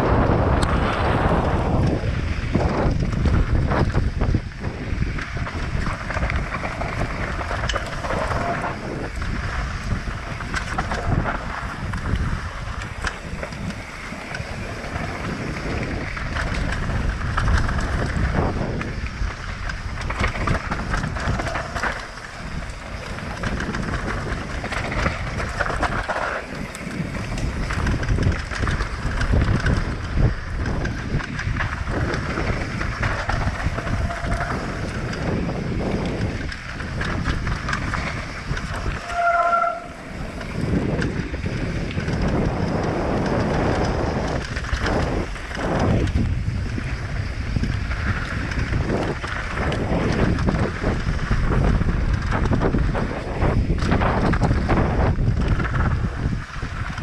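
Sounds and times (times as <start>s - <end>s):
mountain bike rumbling and rattling: 0.0s - 57.0s
wind buffeting microphone: 0.0s - 57.0s
short squeal: 39.0s - 40.0s.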